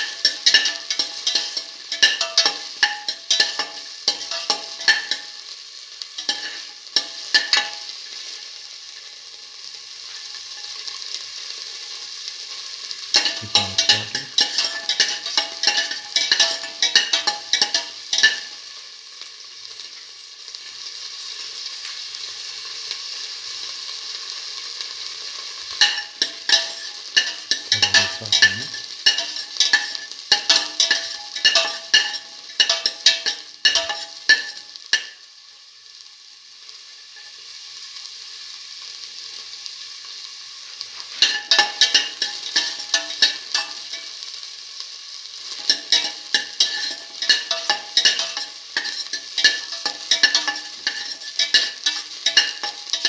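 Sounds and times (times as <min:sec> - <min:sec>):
shallots sizzling in oil: 0:00.0 - 0:53.0
utensil scraping a pan: 0:45.5 - 0:53.0.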